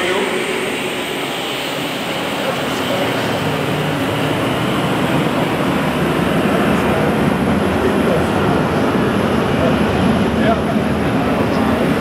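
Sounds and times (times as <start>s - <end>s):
crowd hubbub in large hall: 2.2s - 12.0s.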